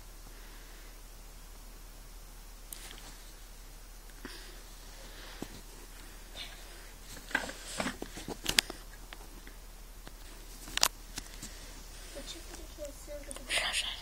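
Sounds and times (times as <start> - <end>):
light rustling: 4.1 - 13.6.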